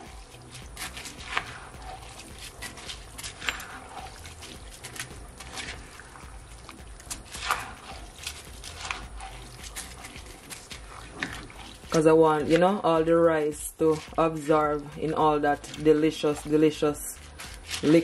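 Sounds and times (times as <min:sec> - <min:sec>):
spatula stirring rice in skillet: 0:00.0 - 0:18.0.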